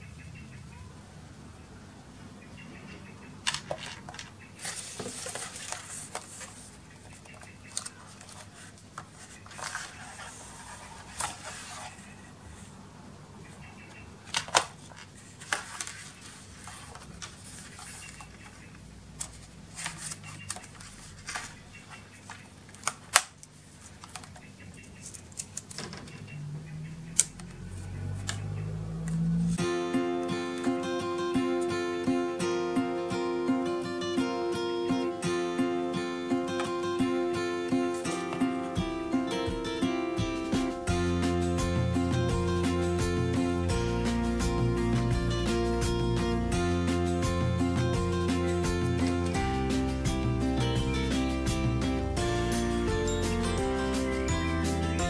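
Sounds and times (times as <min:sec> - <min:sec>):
paper and cardboard rustling: 0:03.5 - 0:12.7, 0:14.2 - 0:26.2, 0:37.7 - 0:40.9.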